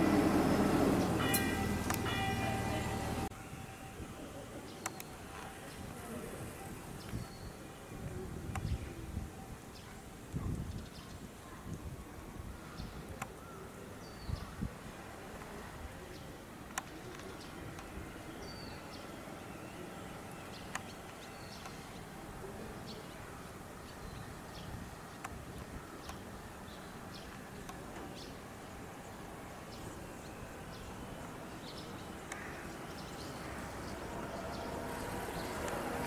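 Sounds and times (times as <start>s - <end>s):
outdoor background noise: 0.0s - 36.0s.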